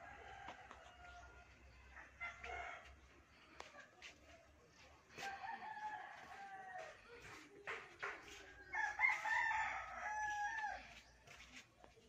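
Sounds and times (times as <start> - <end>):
rooster crowing: 5.2 - 7.0, 8.7 - 11.0.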